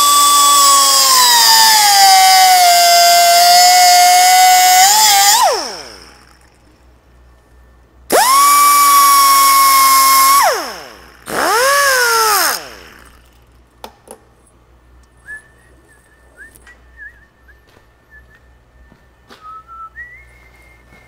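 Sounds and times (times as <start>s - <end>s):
cut-off tool whine: 0.0s - 13.6s.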